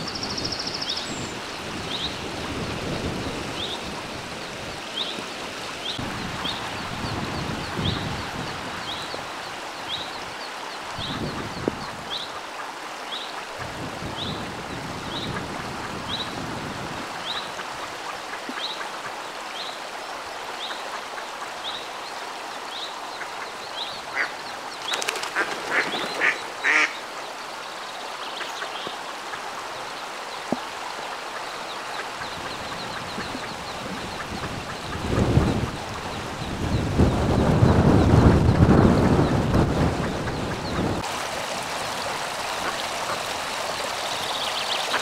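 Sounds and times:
steady watery hiss: 0:00.0 - 0:45.0
ducklings peeping: 0:32.2 - 0:35.8.

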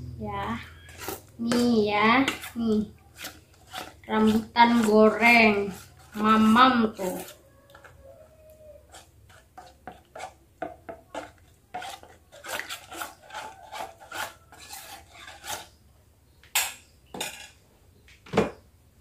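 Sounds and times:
metal spoon scraping a bowl: 0:00.4 - 0:08.2, 0:08.8 - 0:15.8.

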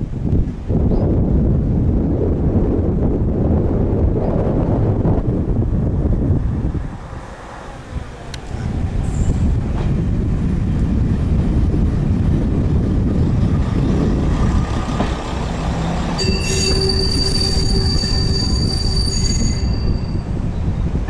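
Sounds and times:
railbus engine and wheels rumbling: 0:00.0 - 0:21.0
metallic wheel squeal: 0:15.8 - 0:21.0.

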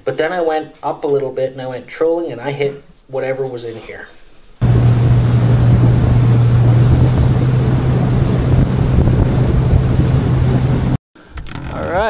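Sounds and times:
outboard motor humming: 0:04.6 - 0:11.0
water rushing: 0:04.6 - 0:11.0
wind buffeting microphone: 0:04.6 - 0:11.0.

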